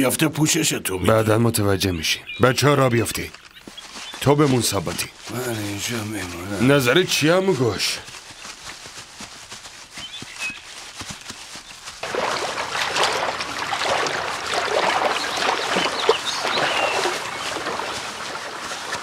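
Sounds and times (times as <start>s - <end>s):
running water: 12.0s - 19.0s.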